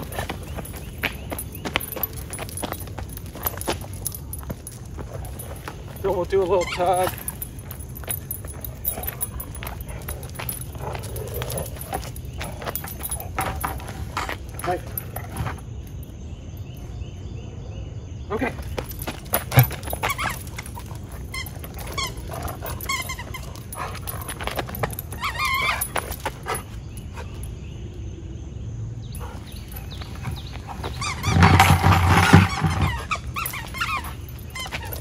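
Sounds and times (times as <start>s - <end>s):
dog whining and yelping: 19.3s - 27.4s, 29.2s - 35.0s.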